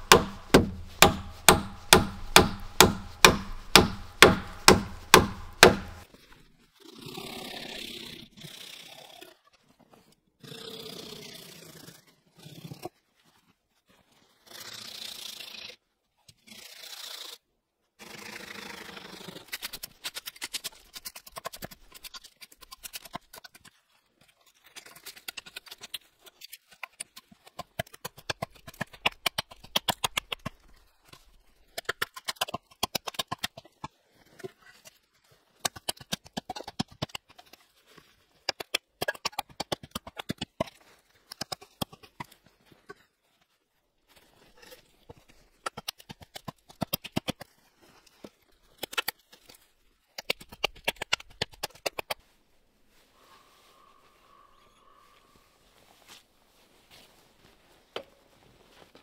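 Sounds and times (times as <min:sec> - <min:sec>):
hatchet chopping wood: 0:00.0 - 0:06.1.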